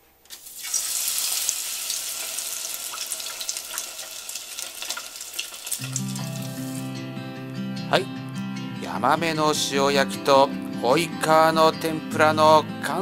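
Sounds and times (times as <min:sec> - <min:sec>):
fish frying in hot oil: 0:00.3 - 0:06.8.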